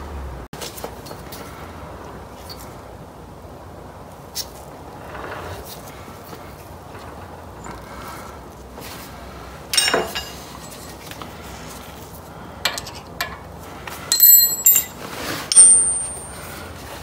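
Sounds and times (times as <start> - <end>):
metal tools clinking: 9.7 - 11.2, 12.6 - 16.7.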